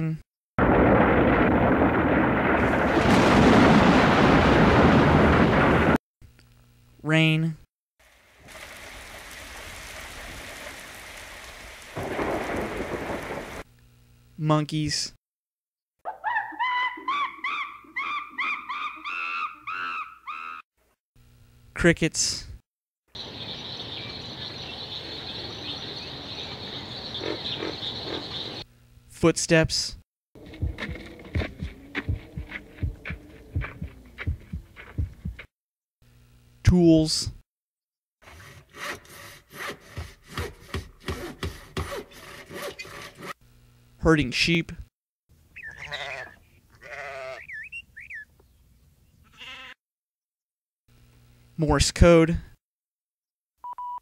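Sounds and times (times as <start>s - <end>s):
crickets chirping: 23.2s - 28.6s
sheep bleating: 45.7s - 47.5s, 49.2s - 49.8s.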